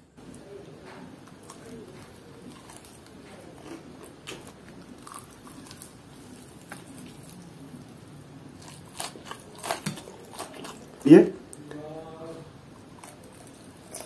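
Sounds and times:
crispy coating crackling: 0.1 - 14.0
person chewing crispy chicken: 1.2 - 11.2, 12.8 - 14.0.

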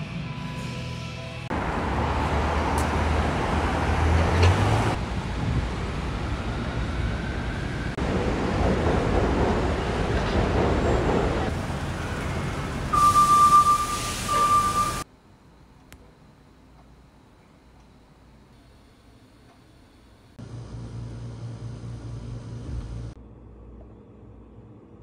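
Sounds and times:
cars passing: 1.5 - 8.8
loud high-pitched tone: 12.9 - 15.0.

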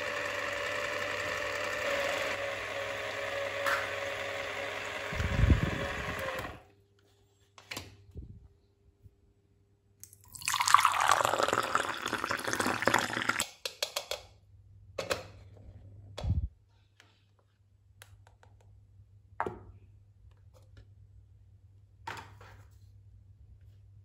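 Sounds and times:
liquid pouring into plastic cup: 10.0 - 13.5.

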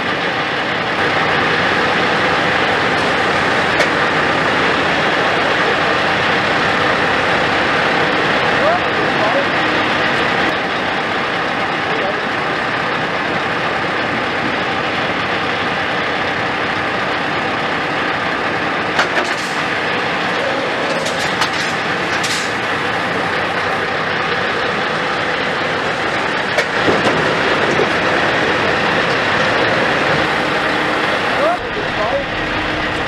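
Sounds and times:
truck diesel engine running: 0.0 - 33.0
short clicks and rattles: 20.5 - 22.7.

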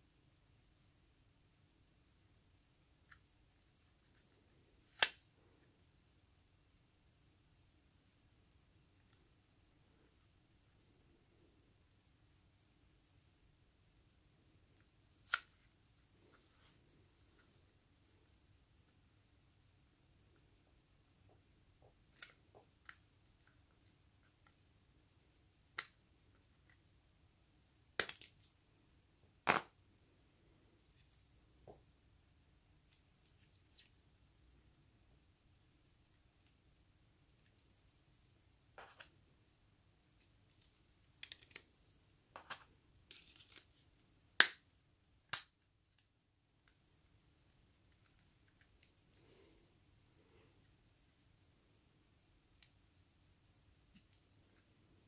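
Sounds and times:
sharp plastic snaps: 4.9 - 5.2, 44.4 - 46.8
small plastic clicks and handling: 21.8 - 24.6, 28.0 - 28.5, 40.1 - 44.7, 45.3 - 49.2.

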